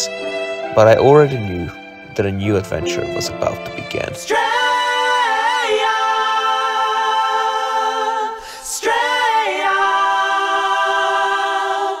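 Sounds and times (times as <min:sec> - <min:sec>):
voices singing a cappella: 0:03.9 - 0:12.0.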